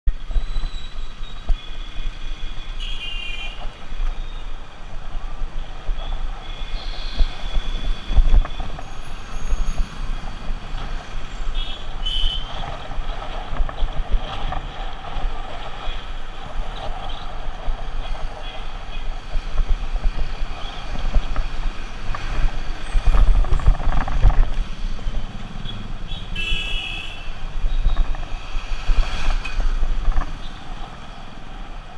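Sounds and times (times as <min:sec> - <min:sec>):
road and traffic noise: 0:00.0 - 0:31.9
wind rumbling over camera: 0:00.1 - 0:31.9
short car horn beeps: 0:26.3 - 0:27.3.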